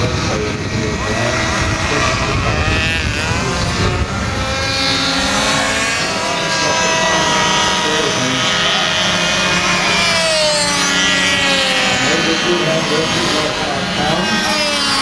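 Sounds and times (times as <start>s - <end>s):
model aircraft engine buzzing: 0.0s - 15.0s.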